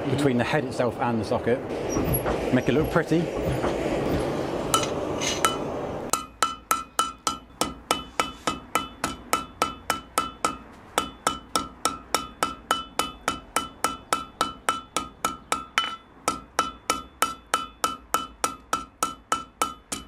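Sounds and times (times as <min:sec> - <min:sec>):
steady noise: 0:00.0 - 0:10.6
hammer striking metal on anvil: 0:04.7 - 0:20.0.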